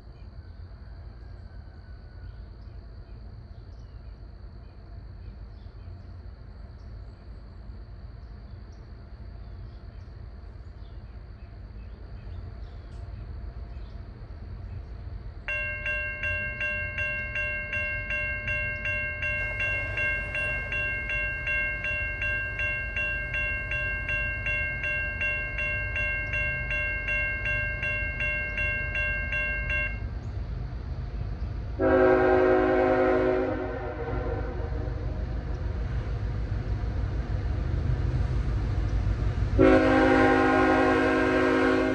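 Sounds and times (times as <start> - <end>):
railroad crossing bell ringing: 15.4 - 30.3, 39.6 - 41.9
locomotive air horn blast: 31.8 - 35.0, 39.6 - 41.9.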